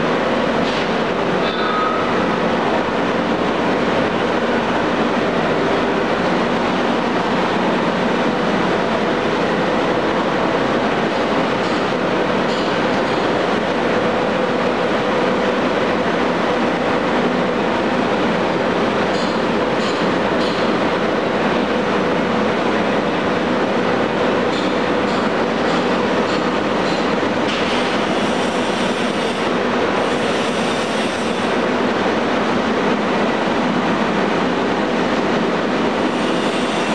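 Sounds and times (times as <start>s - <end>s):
compressor running: 20.8s - 36.9s.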